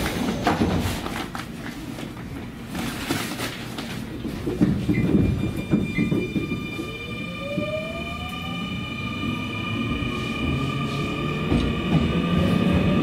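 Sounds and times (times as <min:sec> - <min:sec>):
high inverter tones: 0:05.0 - 0:13.0.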